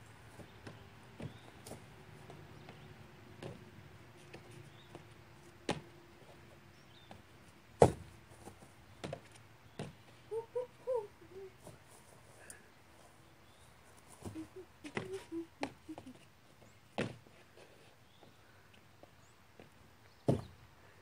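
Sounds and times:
feet thumping on wooden table: 7.8s - 8.1s, 20.3s - 20.5s.

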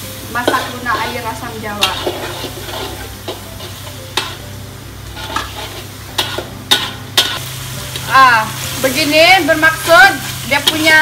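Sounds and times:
curry paste sizzling in oil: 0.0s - 11.0s
metal spatula scraping a wok: 0.4s - 7.5s
spatula clacking against wok: 1.8s - 4.4s, 5.2s - 8.1s.

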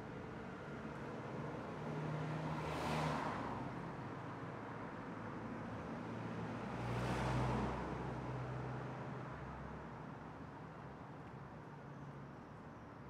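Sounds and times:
car passing by: 2.0s - 3.6s, 6.6s - 8.2s.

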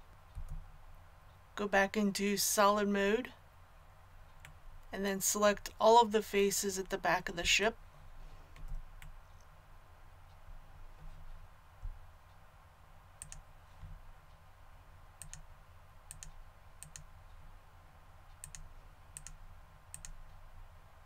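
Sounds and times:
low steady hum: 0.0s - 21.0s
computer mouse clicking: 0.3s - 0.6s, 13.2s - 14.0s, 15.2s - 15.5s, 16.1s - 17.1s, 18.3s - 20.4s.

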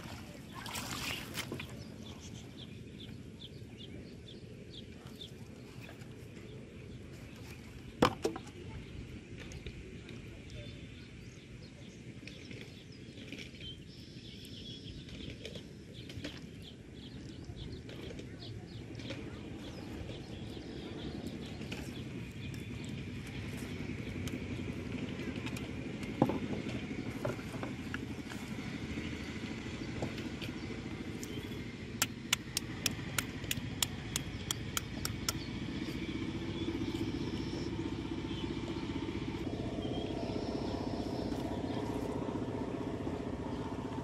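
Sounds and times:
steady low rumble: 0.0s - 44.0s
small birds chirping: 0.1s - 44.0s
bird chirping: 29.0s - 43.9s
sharp clicks: 32.0s - 35.5s.

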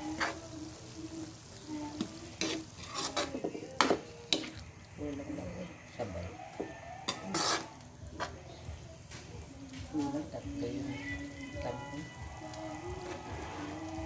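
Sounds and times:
metal spatula scraping a wok: 0.0s - 0.5s, 2.0s - 4.6s, 6.7s - 8.4s, 13.0s - 14.0s
light sizzle: 0.0s - 14.0s.

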